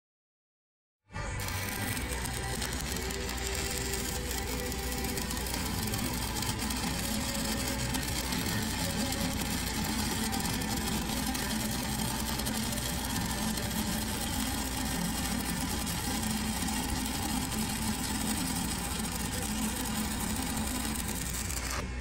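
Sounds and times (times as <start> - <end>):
welding arc crackling hiss: 1.4 - 21.8.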